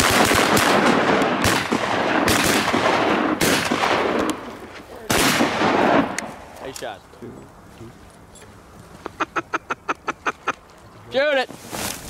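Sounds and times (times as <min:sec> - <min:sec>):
shotguns firing: 0:00.0 - 0:06.4.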